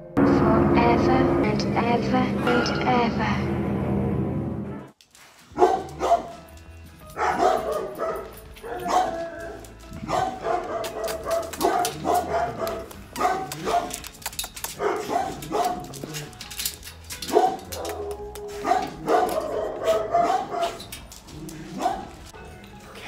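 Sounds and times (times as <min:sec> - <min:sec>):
dogs barking: 0:05.5 - 0:22.4.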